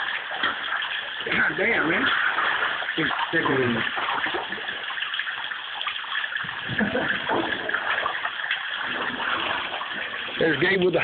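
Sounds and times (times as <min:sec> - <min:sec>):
water running and sloshing: 0:00.0 - 0:11.0.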